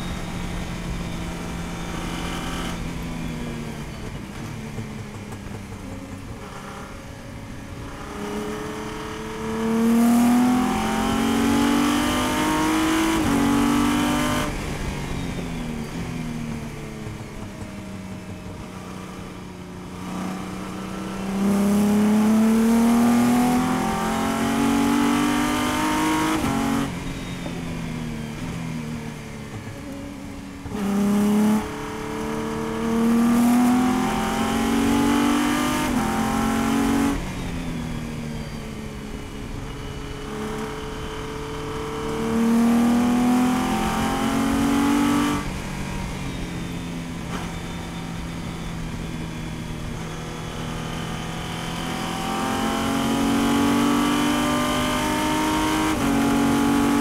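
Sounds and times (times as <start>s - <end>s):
race car engine accelerating: 5.4s - 57.0s.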